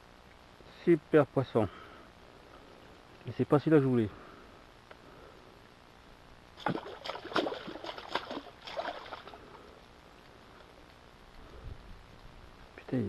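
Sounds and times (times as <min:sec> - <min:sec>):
fish splashing in water: 0:06.6 - 0:09.6.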